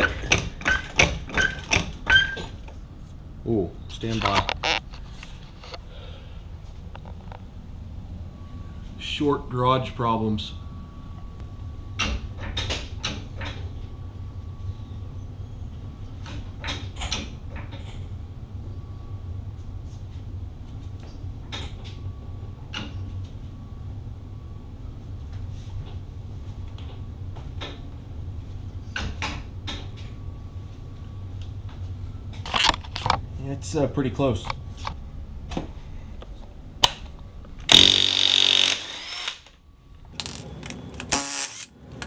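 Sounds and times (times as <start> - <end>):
low hum: 2.6 - 16.3
sharp clicks and creaks: 3.9 - 5.9, 32.4 - 33.2.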